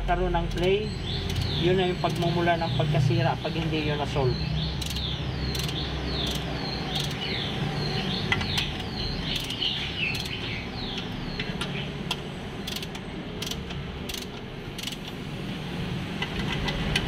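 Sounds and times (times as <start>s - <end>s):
ratcheting wrench clicking: 0.5s - 2.3s, 4.8s - 7.2s, 8.3s - 15.2s.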